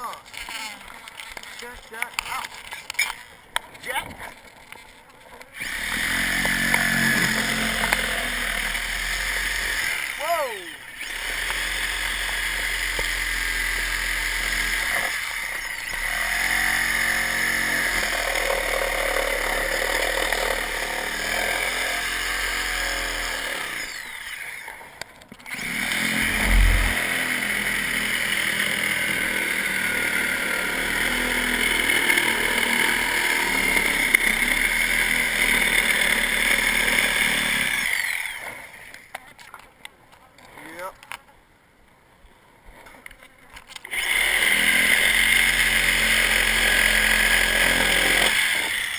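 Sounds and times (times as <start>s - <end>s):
reciprocating saw cutting: 5.5s - 24.8s, 25.5s - 39.1s, 43.9s - 48.9s.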